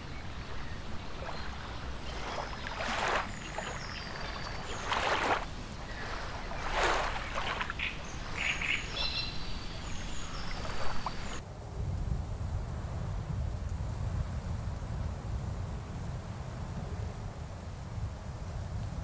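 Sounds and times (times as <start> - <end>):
small birds chirping: 0.0 - 11.4
water sloshing and splashing: 0.0 - 11.4.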